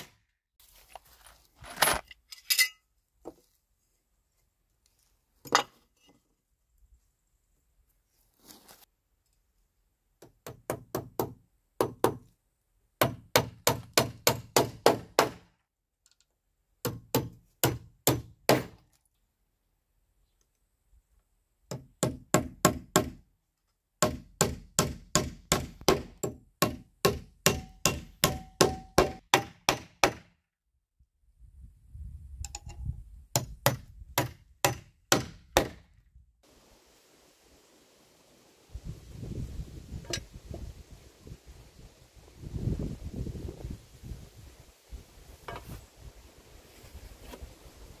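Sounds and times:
hammer striking nails: 13.0 - 15.5, 16.8 - 18.8, 21.7 - 23.2, 24.0 - 30.3, 33.4 - 35.8.

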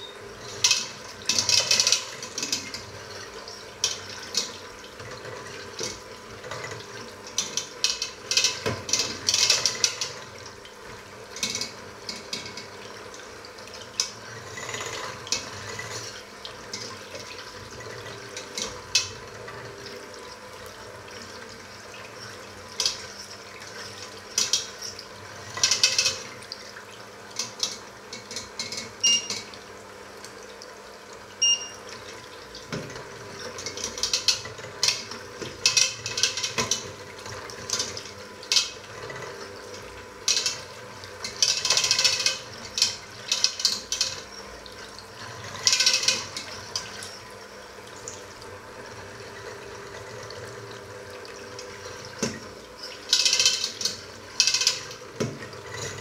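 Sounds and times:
beaters clattering against metal pot: 32.6 - 37.0, 40.2 - 44.3, 45.6 - 47.2, 52.2 - 56.0.

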